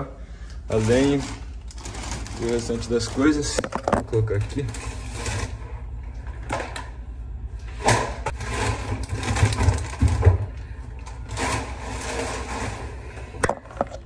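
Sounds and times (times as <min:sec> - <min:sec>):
objects clicking and clattering: 0:07.8 - 0:14.0.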